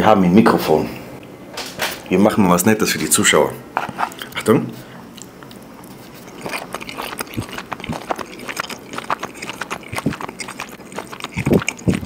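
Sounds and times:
open-mouth chewing and lip-smacking: 0:05.1 - 0:12.0.

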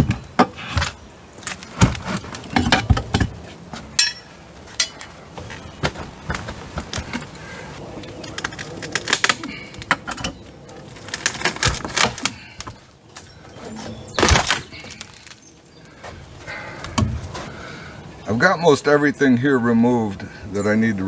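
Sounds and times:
wooden boards cracking and creaking: 0:00.0 - 0:04.0, 0:04.7 - 0:15.5.

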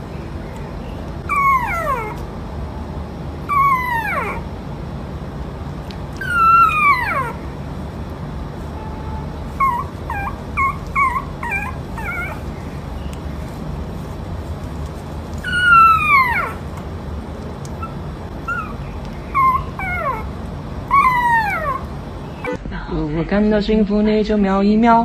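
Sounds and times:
dog yipping: 0:01.2 - 0:02.2, 0:03.4 - 0:04.5, 0:06.2 - 0:07.5, 0:09.5 - 0:13.0, 0:15.4 - 0:16.8, 0:17.7 - 0:22.6
dog whining: 0:01.2 - 0:02.3, 0:03.4 - 0:04.5, 0:06.1 - 0:07.6, 0:09.5 - 0:13.0, 0:15.4 - 0:16.8, 0:17.7 - 0:22.6.

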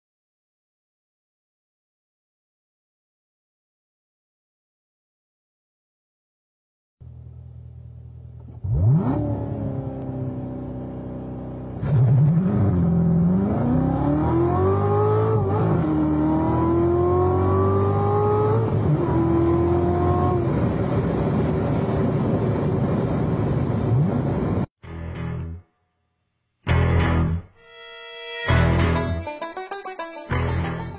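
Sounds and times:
car engine revving and accelerating: 0:08.4 - 0:22.2.

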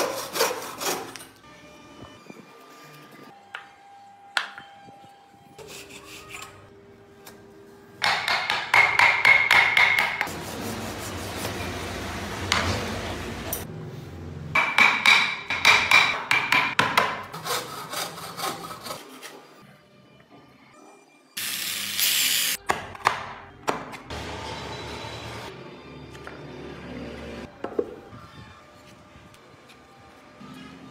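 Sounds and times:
hand saw cutting wood: 0:00.0 - 0:01.3, 0:17.2 - 0:19.4.

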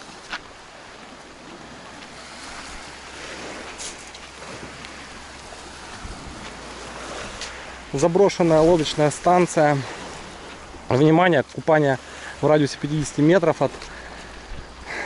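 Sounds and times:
surf waves hissing: 0:00.0 - 0:15.0
wind on microphone: 0:01.4 - 0:07.9.

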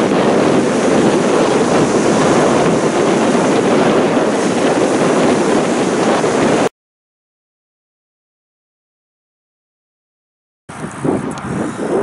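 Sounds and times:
surf washing up beach: 0:00.0 - 0:06.7
wind noise on microphone: 0:00.0 - 0:06.7, 0:10.7 - 0:12.0.

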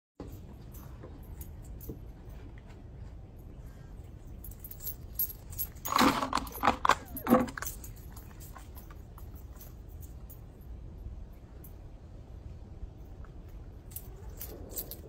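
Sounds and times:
metal pieces jingling: 0:04.3 - 0:10.5, 0:13.9 - 0:15.0.

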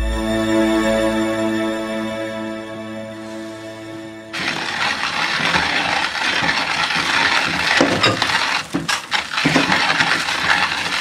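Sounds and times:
coffee grinder crunching beans: 0:04.4 - 0:11.0.

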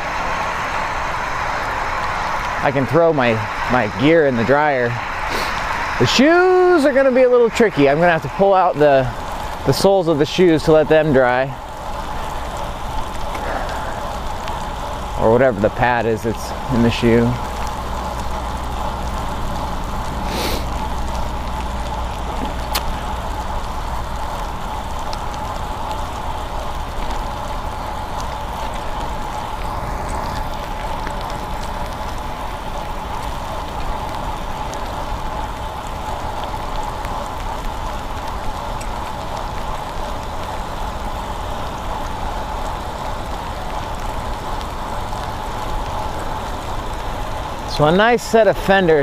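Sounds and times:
bike tyres hissing on wet road: 0:00.0 - 0:49.0.

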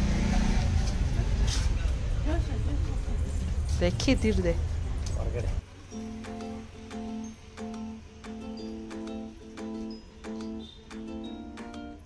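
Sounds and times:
acoustic guitar strumming chords: 0:05.9 - 0:12.0.

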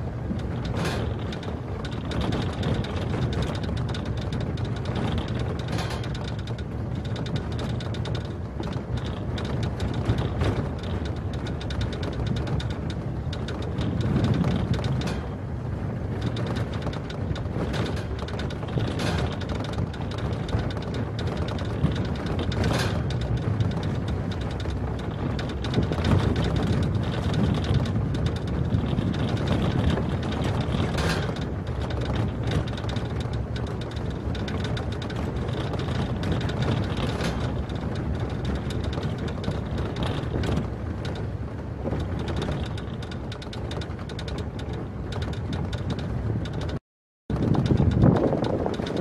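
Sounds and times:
knocks and rattles from bumps: 0:00.0 - 0:49.0
vehicle rumbling on gravel road: 0:00.0 - 0:49.0.

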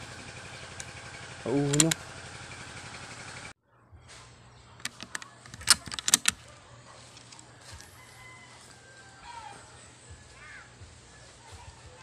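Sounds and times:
sharp clicks and knocks: 0:04.8 - 0:06.4
faint bird calls: 0:09.2 - 0:12.0.

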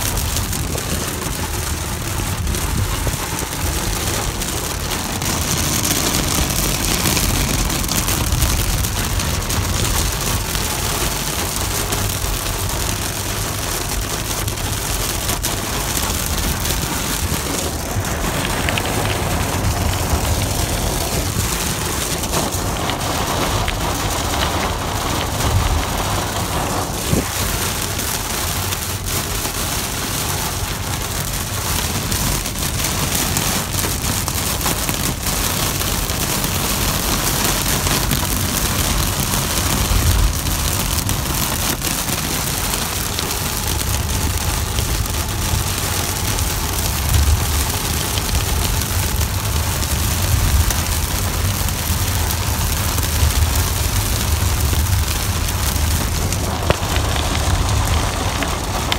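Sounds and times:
heavy rain on car roof: 0:00.0 - 0:58.9
low rumble: 0:00.2 - 0:11.0, 0:13.5 - 0:28.0, 0:49.9 - 0:58.9.

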